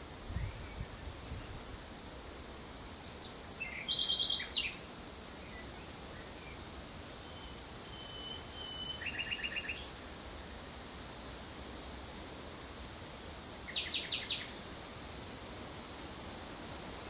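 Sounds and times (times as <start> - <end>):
background hiss: 0.0 - 17.0
nightingale singing: 2.8 - 6.6, 7.2 - 10.0, 12.2 - 14.7.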